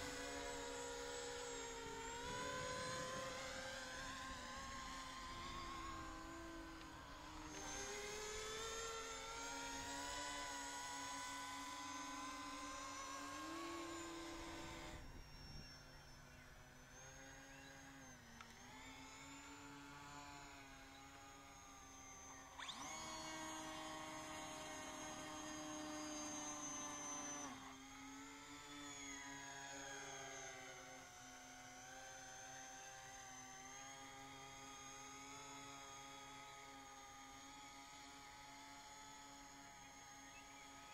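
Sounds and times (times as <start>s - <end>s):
electric motors and propellers whining: 0.0s - 40.9s.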